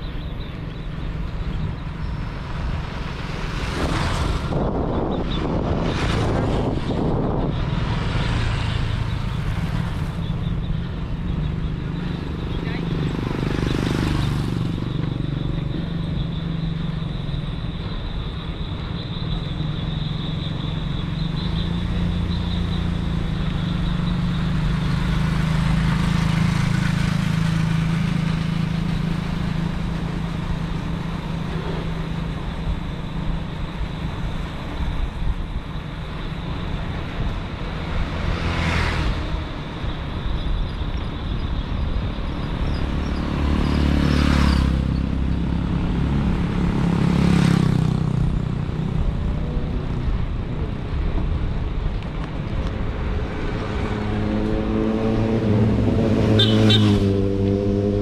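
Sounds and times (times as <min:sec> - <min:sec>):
road noise: 0:00.0 - 0:58.0
wind on microphone: 0:03.2 - 0:09.9.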